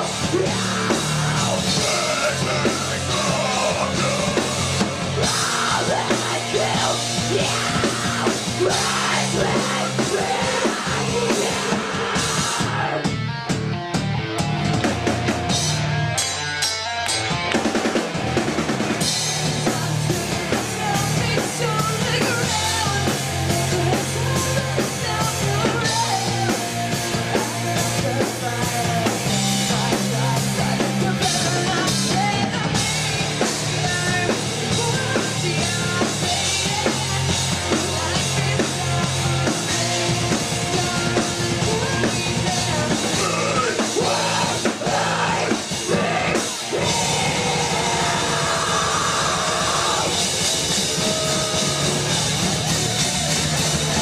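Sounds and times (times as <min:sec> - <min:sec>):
man singing: 0:00.0 - 0:13.1, 0:27.3 - 0:50.2
woman singing lead vocals: 0:00.0 - 0:13.1, 0:19.4 - 0:52.2
live rock band playing: 0:00.0 - 0:54.0.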